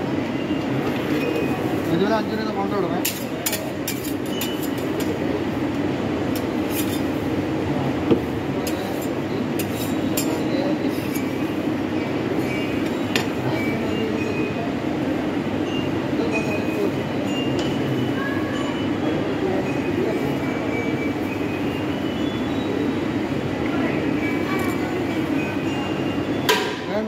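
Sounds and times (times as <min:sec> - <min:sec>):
metal spatulas clinking on steel: 0:03.0 - 0:05.2, 0:08.6 - 0:10.5.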